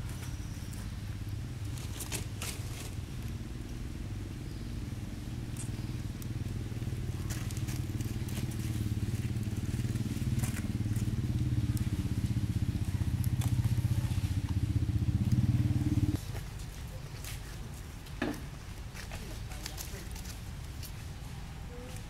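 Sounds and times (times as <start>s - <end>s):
motor engine humming: 0.0s - 16.4s.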